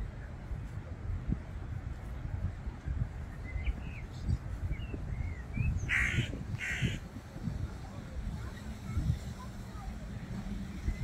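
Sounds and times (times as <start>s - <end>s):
crow cawing: 5.9s - 7.0s.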